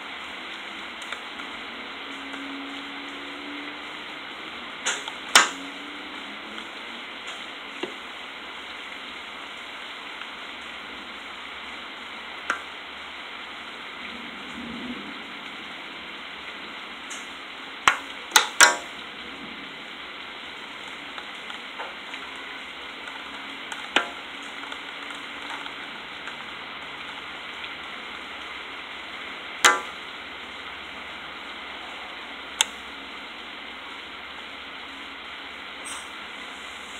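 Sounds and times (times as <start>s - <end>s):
heavy rain hiss: 0.0s - 36.9s
hail ticks: 0.5s - 1.6s, 4.8s - 5.8s, 12.3s - 12.8s, 17.0s - 19.1s, 20.5s - 30.3s, 32.5s - 32.8s.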